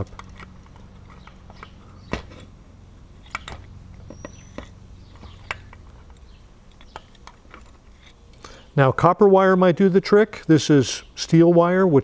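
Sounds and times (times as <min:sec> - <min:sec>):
small metallic clicks: 0:00.0 - 0:02.5, 0:03.2 - 0:08.6.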